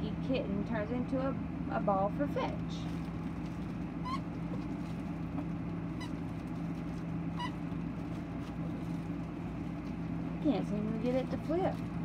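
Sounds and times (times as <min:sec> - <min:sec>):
squeaky dog toy squeaking: 0:07.4 - 0:07.6.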